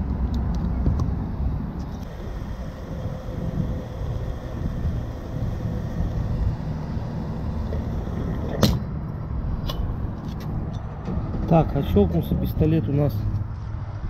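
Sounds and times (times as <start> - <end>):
fuel nozzle shut-off click: 1.8 - 8.9
fuel rushing into tank: 1.8 - 9.0.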